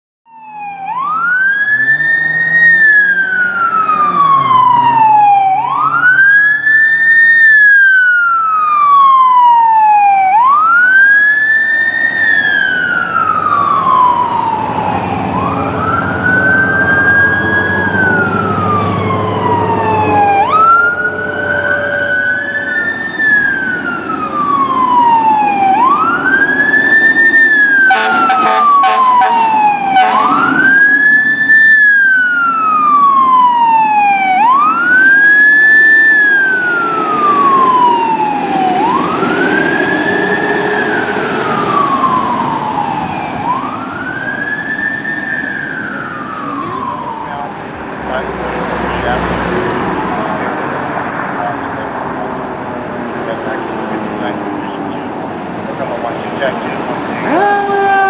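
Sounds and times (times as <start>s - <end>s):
fire engine sirens wailing: 0.3s - 58.0s
truck engine rumbling: 0.8s - 58.0s
short horn blasts: 27.9s - 30.4s.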